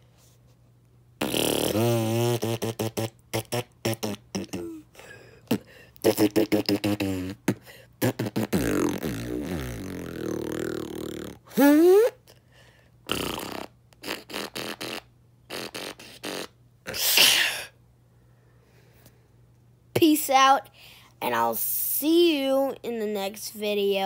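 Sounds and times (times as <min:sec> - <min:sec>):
person beatboxing: 0:01.2 - 0:12.2, 0:13.1 - 0:17.1.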